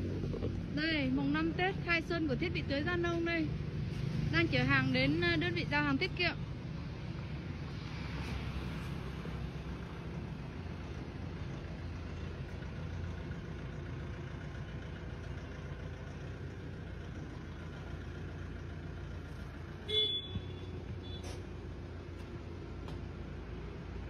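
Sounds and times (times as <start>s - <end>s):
truck engine running: 0.0s - 24.0s
short sharp horn toot: 19.9s - 21.4s.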